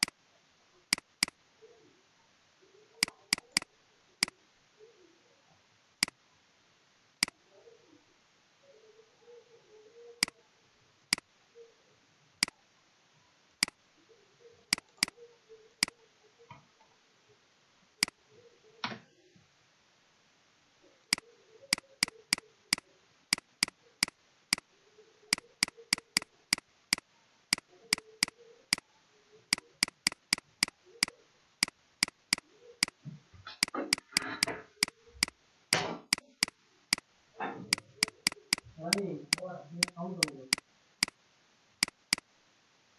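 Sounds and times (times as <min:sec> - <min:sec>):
mouse and keyboard clicking: 0:00.9 - 0:01.4, 0:03.0 - 0:03.7, 0:14.7 - 0:15.2, 0:21.1 - 0:24.7, 0:25.3 - 0:28.8, 0:29.5 - 0:41.2, 0:41.8 - 0:42.3.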